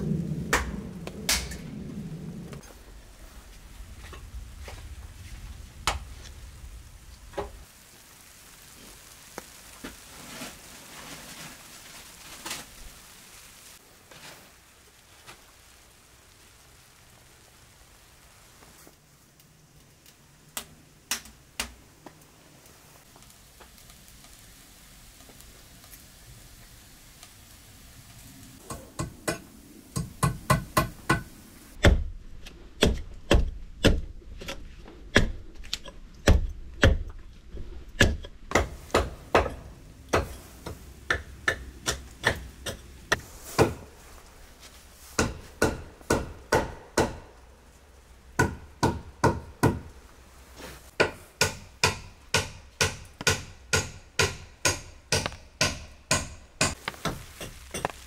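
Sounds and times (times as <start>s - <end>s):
hammer striking wood: 28.7s - 32.1s, 45.2s - 47.3s, 48.4s - 49.9s, 51.0s - 57.2s.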